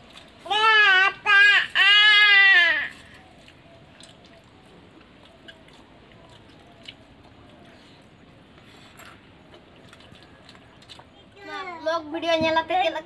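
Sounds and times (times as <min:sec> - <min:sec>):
chewing: 0:03.4 - 0:11.2.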